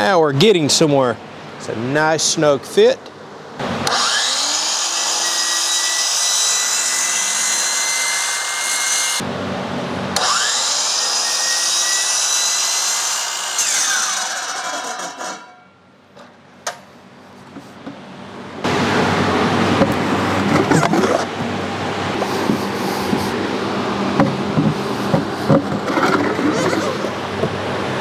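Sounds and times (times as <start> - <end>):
miter saw cutting: 3.6 - 9.2, 10.2 - 15.6, 24.6 - 27.2.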